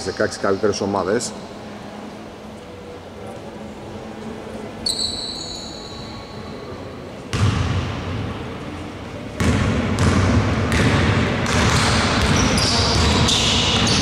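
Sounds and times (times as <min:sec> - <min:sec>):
high whistle-like tone: 0:04.8 - 0:06.6
basketball bouncing: 0:07.3 - 0:08.0, 0:09.4 - 0:14.0.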